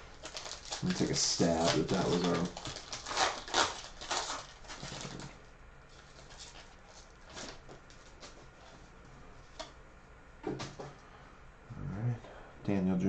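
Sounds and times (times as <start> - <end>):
cards rustling: 0.1 - 5.3.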